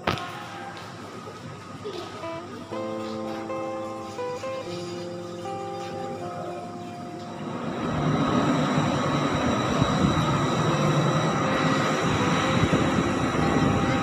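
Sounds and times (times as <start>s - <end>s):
wind buffeting microphone: 6.9s - 14.0s.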